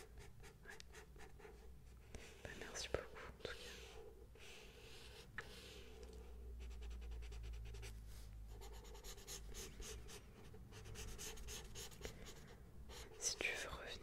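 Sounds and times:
pencil scratching on paper: 0.0s - 1.7s, 6.6s - 13.7s.

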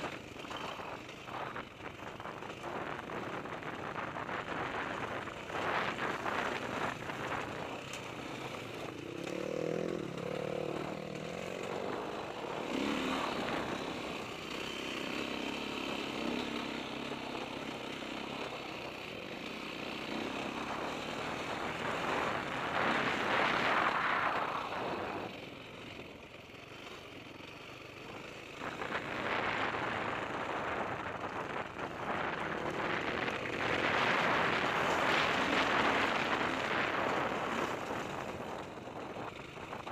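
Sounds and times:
dirt bike engine: 0.0s - 39.9s.

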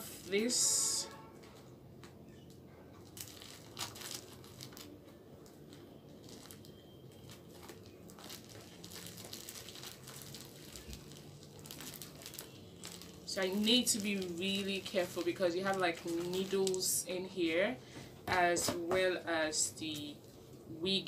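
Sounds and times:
bubble wrap crinkling: 2.4s - 17.2s.

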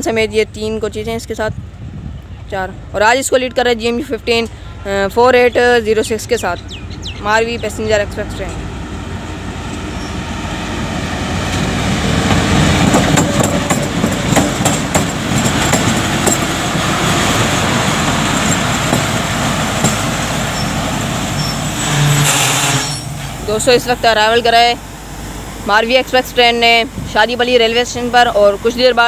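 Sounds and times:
diesel locomotive engine running: 0.0s - 29.0s
train wheels clacking over rail joints: 11.5s - 23.4s.

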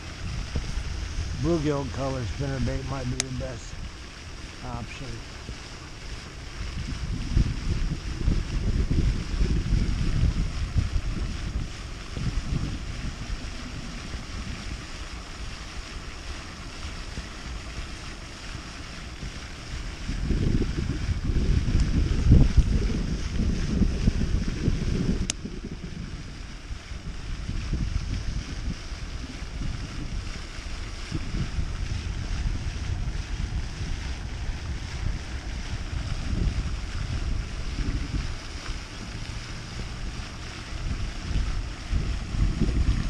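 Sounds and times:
steady rushing hiss: 0.0s - 43.0s
wind buffeting microphone: 0.0s - 43.0s.

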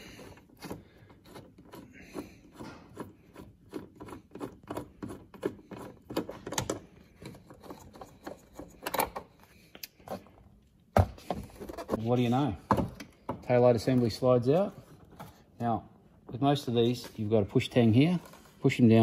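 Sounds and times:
screwdriver clicking and scraping: 0.2s - 10.2s.

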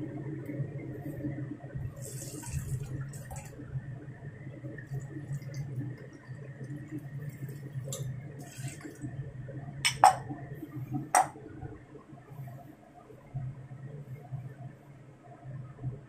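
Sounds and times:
steady low hum: 0.0s - 16.0s
kitchenware clinking: 9.9s - 10.3s, 11.1s - 11.4s.

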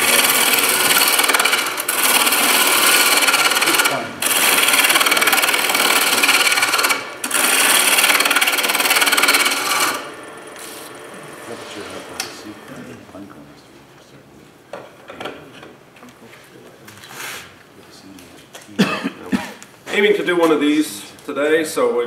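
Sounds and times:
lathe tool rasping on wood: 0.0s - 12.7s
lathe running quietly: 0.0s - 13.3s.

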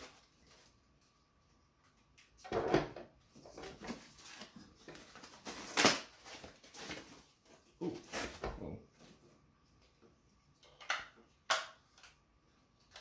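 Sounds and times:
packaging rustling: 3.6s - 7.4s.

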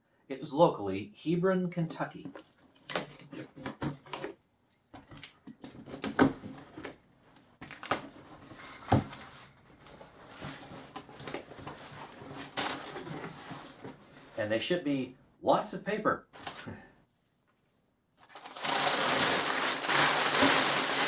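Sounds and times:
cardboard flaps scraping: 7.8s - 14.4s
packing paper crinkling: 18.2s - 21.0s.

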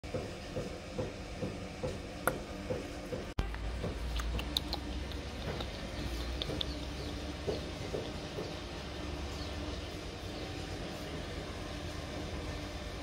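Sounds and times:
steady low hum: 0.1s - 13.0s
soft rhythmic dog sounds: 3.8s - 8.7s
dog claws clicking on tiles: 4.0s - 6.8s.

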